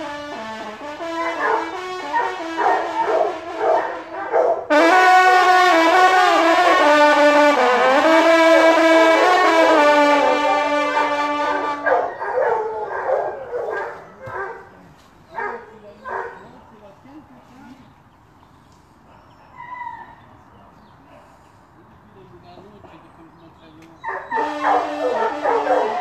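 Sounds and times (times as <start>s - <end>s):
hunting horn call: 0.0s - 13.1s, 24.3s - 26.0s
hounds baying and yelping: 1.2s - 4.7s, 11.8s - 16.6s, 24.0s - 26.0s.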